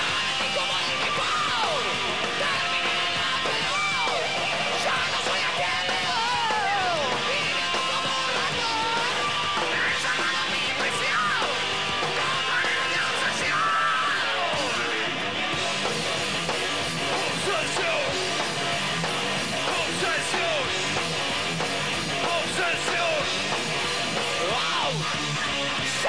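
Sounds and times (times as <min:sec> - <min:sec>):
bass guitar: 0:00.0 - 0:26.0
distorted electric guitar lead: 0:00.0 - 0:26.0
drums: 0:00.0 - 0:26.0.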